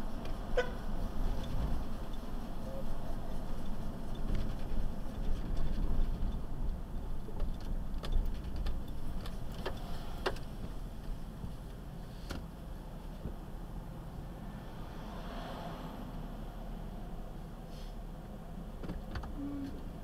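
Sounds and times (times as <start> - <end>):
car driving rumble: 0.0 - 20.0
clicks and light knocks: 7.2 - 12.4.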